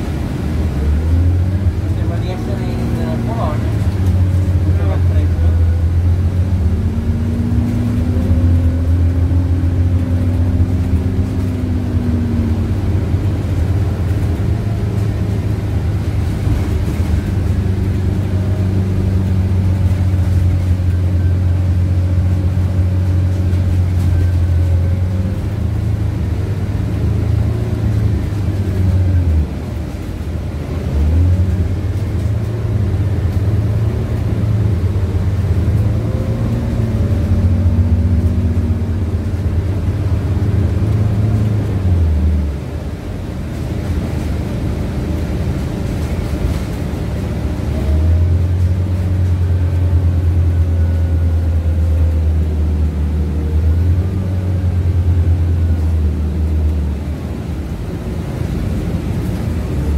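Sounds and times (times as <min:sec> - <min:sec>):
bus engine drone: 0:00.0 - 0:59.9.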